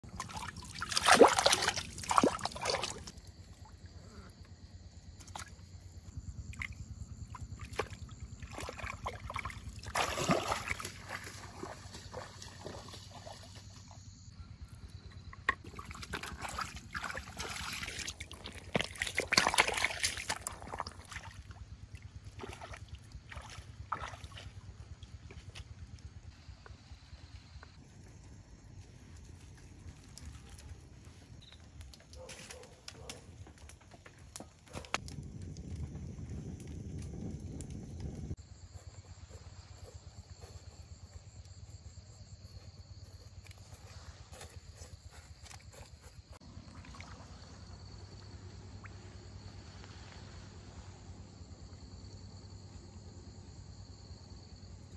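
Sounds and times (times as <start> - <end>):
water sloshing and splashing: 0.0 - 3.8, 5.2 - 5.8, 6.5 - 14.1, 15.2 - 25.8, 43.5 - 50.2.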